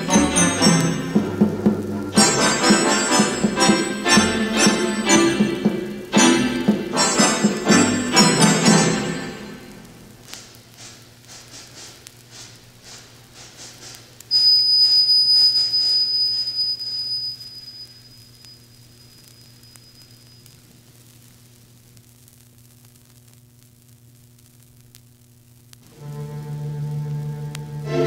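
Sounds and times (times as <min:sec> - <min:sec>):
low electrical hum: 0:00.0 - 0:28.0
record surface noise: 0:00.0 - 0:28.0
high steady whistling tone: 0:14.2 - 0:20.8.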